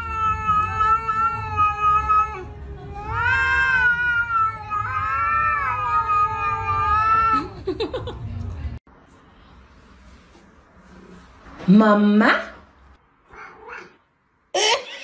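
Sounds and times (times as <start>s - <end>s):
cat yowling: 0.0s - 7.6s, 13.3s - 14.0s.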